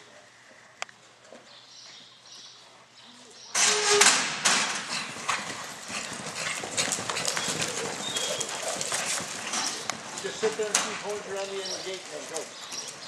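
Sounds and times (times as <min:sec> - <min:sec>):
loud clatter: 0:03.6 - 0:07.0
hoofbeats galloping on dirt: 0:04.3 - 0:13.0.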